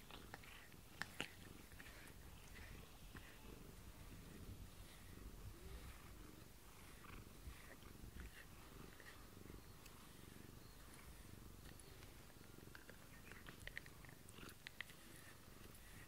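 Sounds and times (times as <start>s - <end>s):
brush scratching fur: 0.0s - 16.0s
cat purring: 0.0s - 16.0s.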